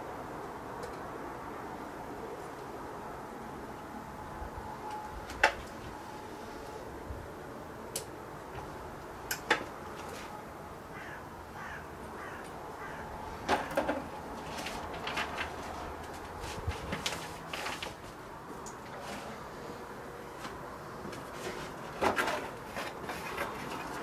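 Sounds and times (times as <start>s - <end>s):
crow cawing: 10.9s - 13.4s
paper rustling: 14.3s - 18.2s.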